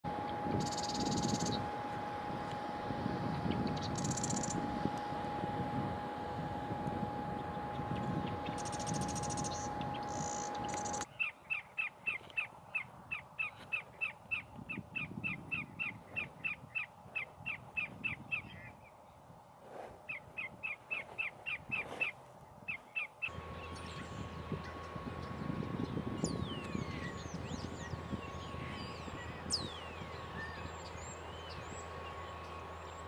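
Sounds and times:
high buzzy trills: 0:00.0 - 0:11.1, 0:23.3 - 0:33.0
steady hum: 0:00.0 - 0:33.0
shorebird sharp calls: 0:00.2 - 0:01.7, 0:07.4 - 0:18.8, 0:20.1 - 0:32.9.

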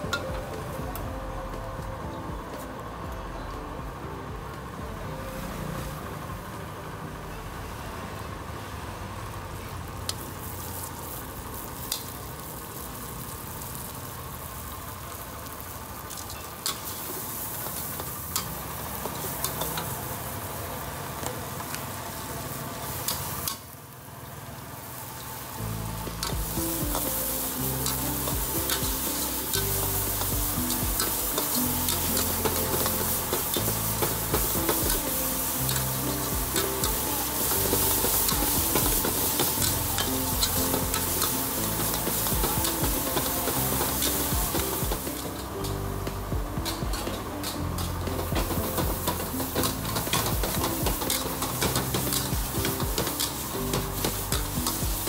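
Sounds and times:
oil sizzling in a wok: 0:03.9 - 0:55.0.

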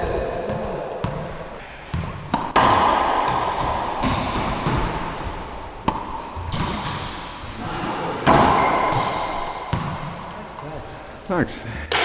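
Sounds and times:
racquetball ball cracks echoing: 0:00.5 - 0:10.3.

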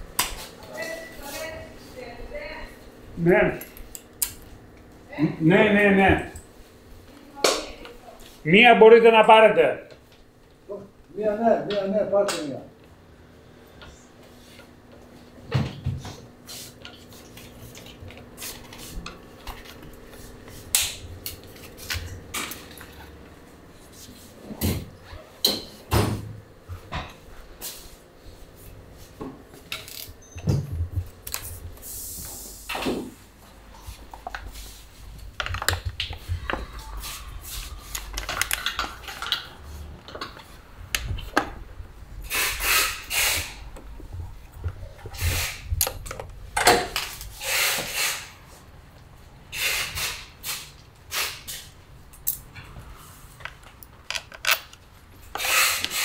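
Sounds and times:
tools and parts clicking and knocking: 0:35.3 - 0:36.3, 0:37.9 - 0:41.5, 0:51.2 - 0:52.8, 0:53.4 - 0:56.0.

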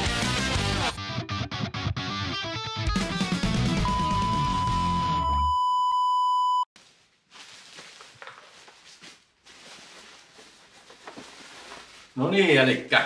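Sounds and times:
distorted electric guitar music: 0:00.0 - 0:05.4
test tone beep: 0:03.9 - 0:06.7
rustling and handling noise: 0:06.8 - 0:12.8.

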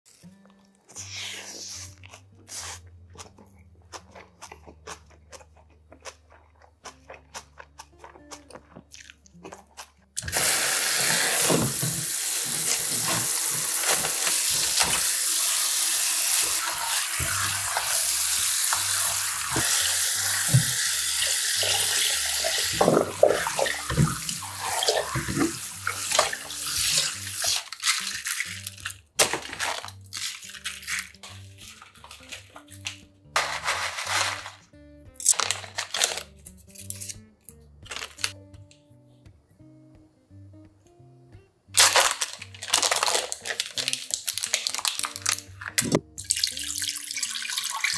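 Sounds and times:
kitchen tap running onto leaves: 0:10.3 - 0:34.1, 0:41.8 - 0:47.9.

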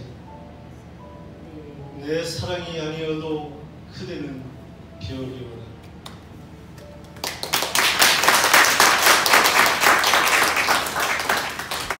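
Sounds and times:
audience applauding: 0:07.0 - 0:12.0.

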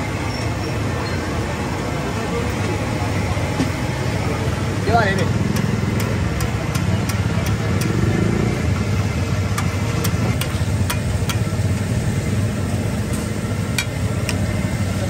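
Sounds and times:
low engine-like rumble: 0:00.9 - 0:15.0
metal spatula striking griddle: 0:05.2 - 0:08.0, 0:09.5 - 0:11.6, 0:13.1 - 0:14.5.

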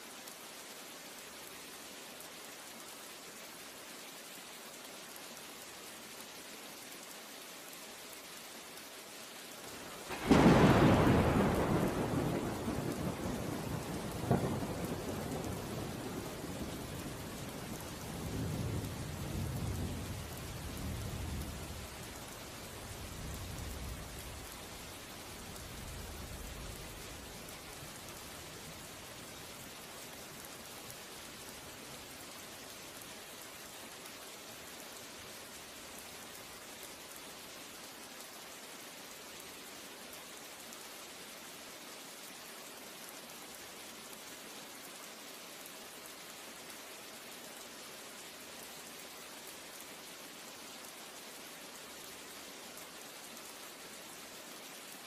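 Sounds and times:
steady rain hiss: 0:00.0 - 0:55.0.

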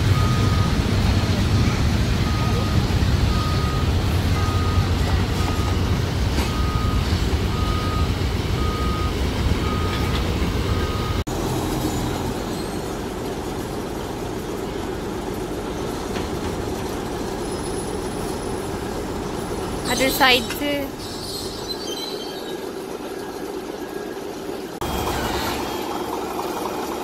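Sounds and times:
diesel engine running: 0:00.0 - 0:22.0, 0:22.6 - 0:27.0
machinery rumble: 0:00.0 - 0:27.0
backup alarm beeping: 0:00.1 - 0:00.8, 0:02.3 - 0:11.2, 0:19.0 - 0:26.1.

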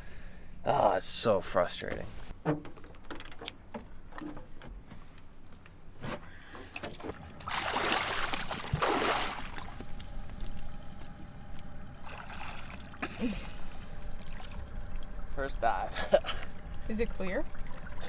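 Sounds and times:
water rushing: 0:07.3 - 0:11.0, 0:11.8 - 0:18.0
splash into water: 0:07.4 - 0:09.8.

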